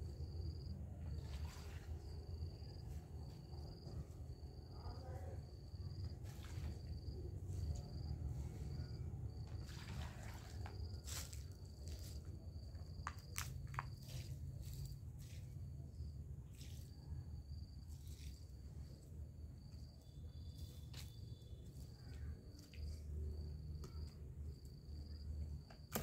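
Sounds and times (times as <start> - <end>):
footsteps on dry dirt: 10.7 - 15.6.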